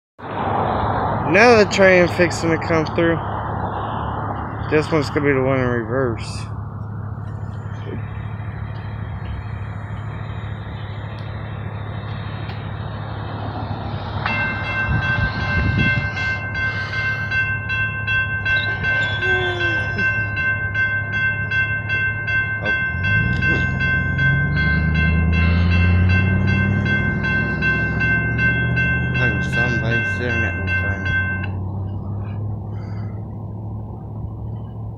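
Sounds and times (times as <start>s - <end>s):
diesel locomotive engine rumbling: 0.2s - 34.9s
railroad crossing warning bell: 7.6s - 13.0s, 14.2s - 33.1s.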